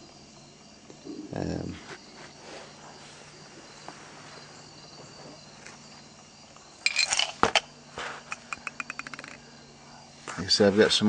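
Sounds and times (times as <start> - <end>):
low background noise: 0.0 - 11.0
sharp metal clicks clattering: 8.3 - 9.4.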